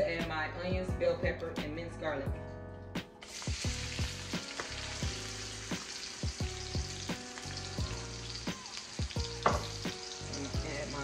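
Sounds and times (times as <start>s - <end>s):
onions sizzling in hot fat: 3.2s - 11.0s.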